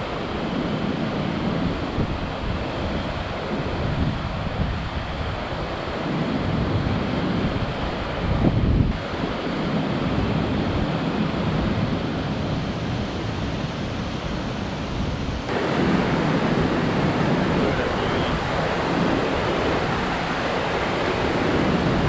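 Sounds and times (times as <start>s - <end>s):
waterfall and rapids rushing: 0.0s - 22.0s.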